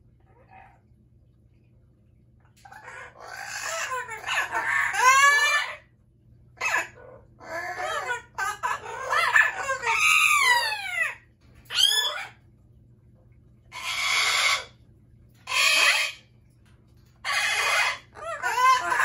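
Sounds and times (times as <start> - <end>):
parrot harsh squawks: 2.6 - 5.9, 6.6 - 12.4, 13.7 - 14.8, 15.4 - 16.3, 17.2 - 19.0
parrots whistling calls: 2.7 - 5.8, 6.6 - 12.4, 13.7 - 14.8, 15.4 - 16.2, 17.2 - 19.0.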